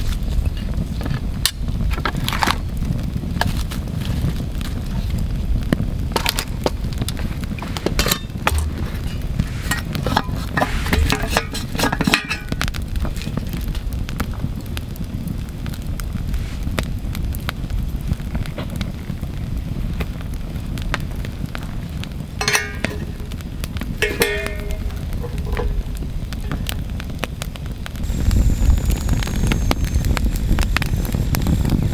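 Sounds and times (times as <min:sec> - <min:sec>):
campfire crackling and popping: 0:00.0 - 0:31.9
steady low rumble: 0:02.6 - 0:31.9
metal pots clinking: 0:07.6 - 0:12.6, 0:22.4 - 0:23.4, 0:24.0 - 0:26.6
ringing metallic clinks: 0:22.4 - 0:23.1, 0:24.0 - 0:25.8.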